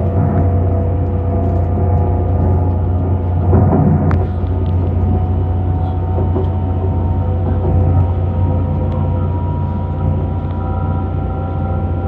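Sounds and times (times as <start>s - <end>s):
faint whining tones: 0.0s - 12.0s
train running rumble: 0.0s - 12.0s.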